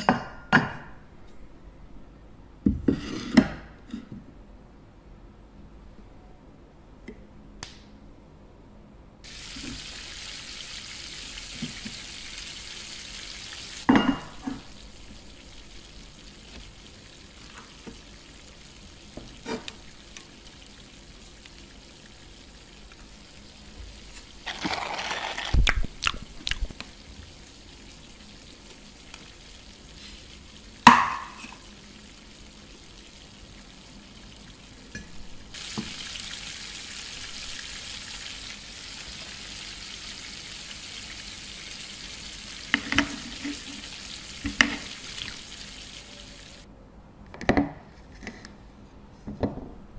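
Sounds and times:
frying sizzle: 9.2 - 46.7.

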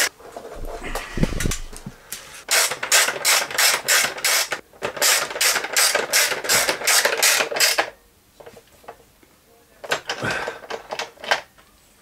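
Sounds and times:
low knock and scrape: 0.5 - 2.0.

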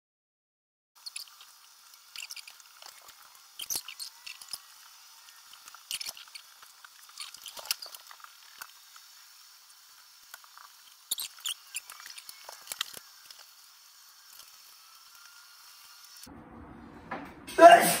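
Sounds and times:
coving clicks and scrapes: 5.3 - 8.8.

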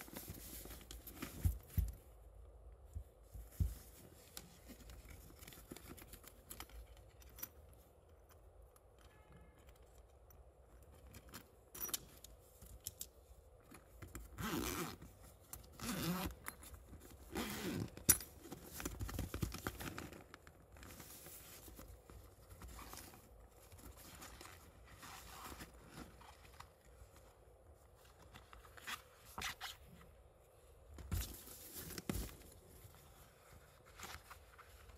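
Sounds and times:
fabric rustling: 0.0 - 2.3, 14.4 - 34.9
zipper pulled open: 14.3 - 15.1, 15.7 - 16.5, 17.2 - 18.1.

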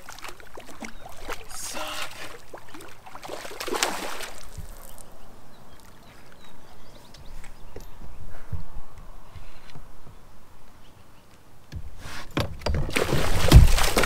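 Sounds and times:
fish thrashing and splashing: 0.0 - 5.1, 12.8 - 14.0.

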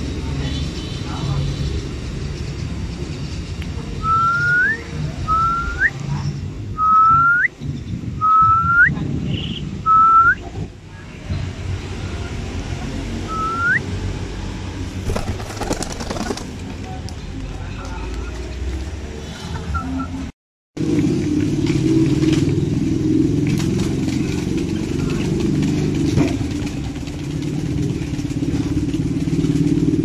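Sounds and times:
short rising whistled notes: 13.2 - 13.8
pigeon wing flaps: 14.9 - 17.2, 23.5 - 29.9.

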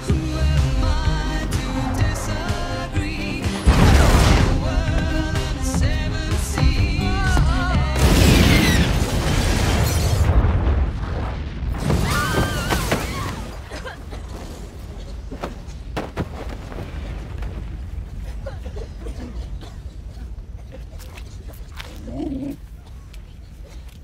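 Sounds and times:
house exploding: 1.7 - 6.0, 7.8 - 15.2
debris crashing and shattering: 3.6 - 5.1, 7.9 - 18.5.

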